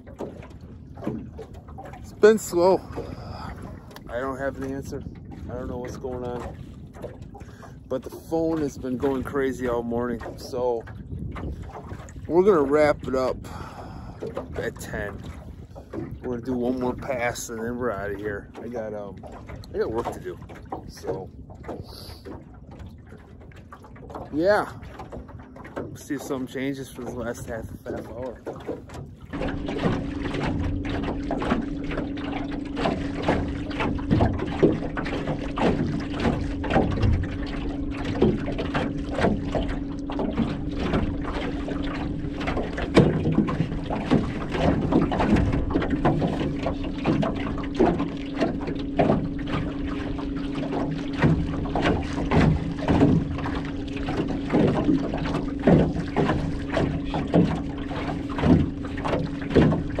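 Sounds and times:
waves lapping against boat hull: 0.0 - 60.0.

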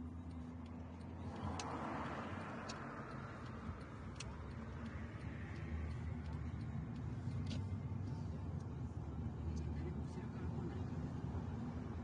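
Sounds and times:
faint ticks: 0.0 - 8.8
road noise: 0.0 - 12.0.

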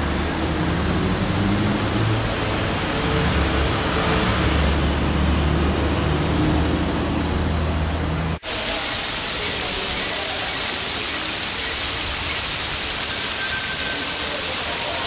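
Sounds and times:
noisy street background: 0.0 - 15.0
heavy rain falling on water: 8.4 - 15.0.

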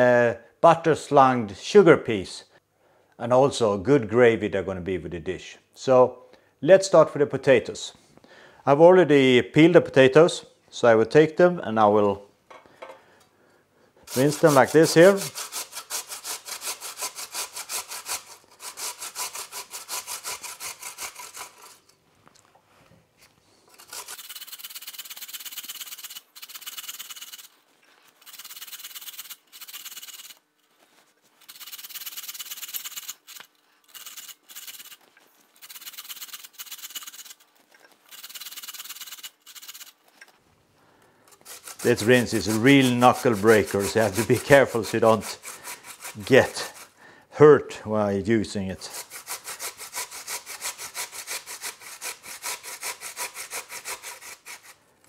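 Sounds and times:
potatoes grated on metal grater: 14.1 - 21.8, 23.7 - 30.4, 31.3 - 40.0, 41.4 - 47.0, 48.8 - 54.8.

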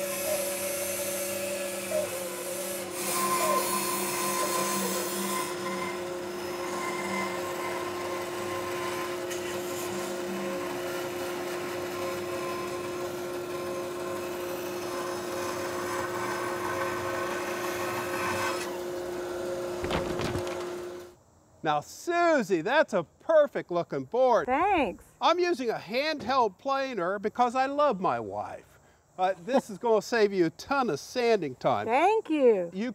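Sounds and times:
bandsaw cutting wood: 0.0 - 21.1.

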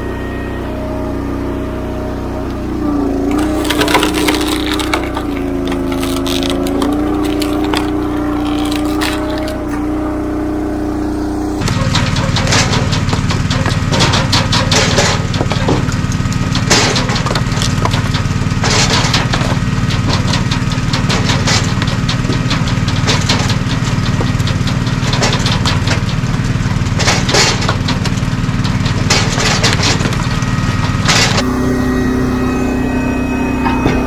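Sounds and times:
splitter engine humming: 0.0 - 34.0
firewood clattering onto woodpile: 3.3 - 9.7, 11.6 - 31.4.

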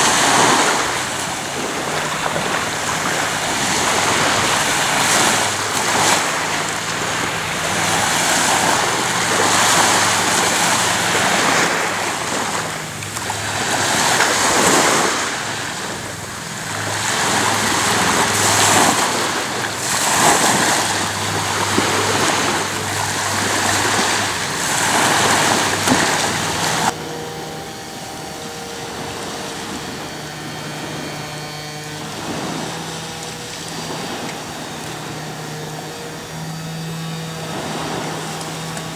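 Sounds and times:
small waves washing onto beach: 0.0 - 27.0, 28.0 - 38.9.

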